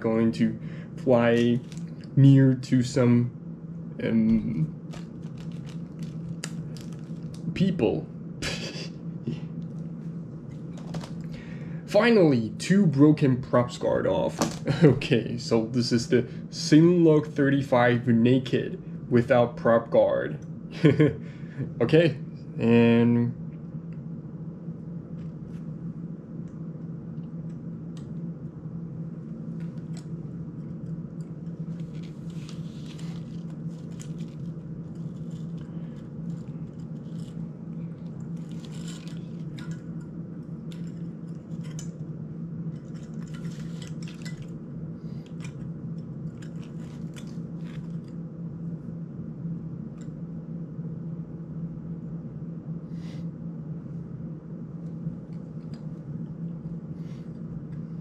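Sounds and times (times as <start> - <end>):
low hum: 0.0 - 58.0
small clicks and rattles of handling: 4.9 - 7.5, 38.0 - 40.1, 45.2 - 48.2.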